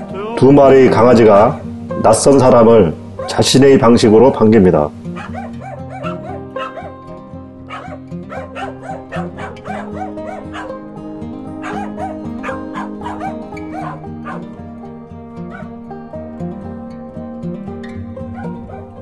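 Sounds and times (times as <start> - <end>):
background music: 0.0 - 19.0
dogs barking and yipping: 5.1 - 10.9, 11.5 - 14.6, 15.4 - 15.8, 18.3 - 19.0.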